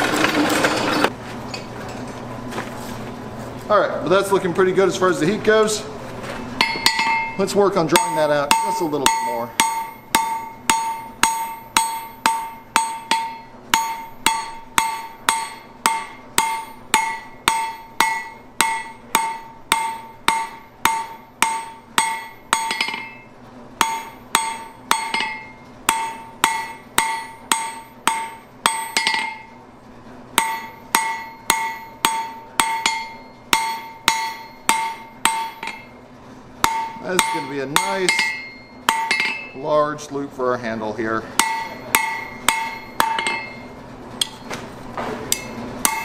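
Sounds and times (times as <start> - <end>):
hammer striking steel on anvil: 6.6 - 29.6, 30.4 - 36.0, 36.6 - 39.7, 41.3 - 44.6, 45.2 - 46.0.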